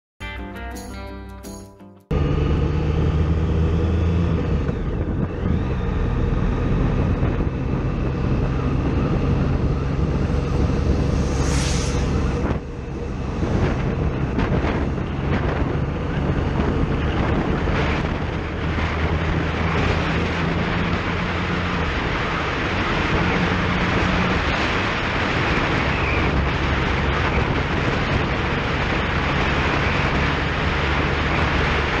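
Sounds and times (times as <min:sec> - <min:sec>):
wind rushing over microphone: 0:03.0 - 0:32.0
motorcycle engine running: 0:12.4 - 0:32.0.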